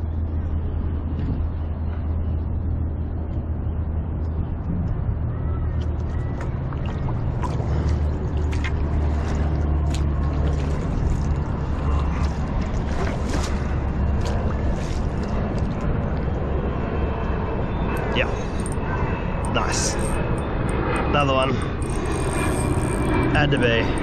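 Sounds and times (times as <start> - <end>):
low engine drone: 0.0 - 24.0
sharp clicks and ticks: 19.4 - 24.0.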